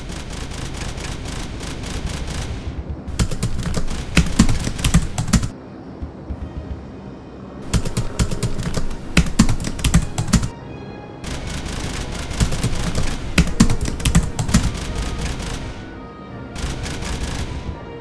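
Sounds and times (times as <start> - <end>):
faint background music: 1.9 - 18.0
keyboard key clicks: 2.8 - 6.8, 7.7 - 10.5, 11.4 - 15.8.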